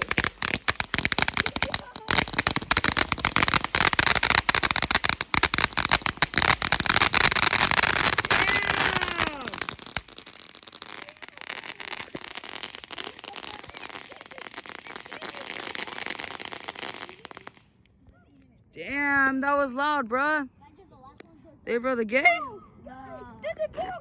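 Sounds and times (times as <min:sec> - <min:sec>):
firework whistles: 0:00.0 - 0:17.6
firework sparks crackling: 0:00.0 - 0:17.8.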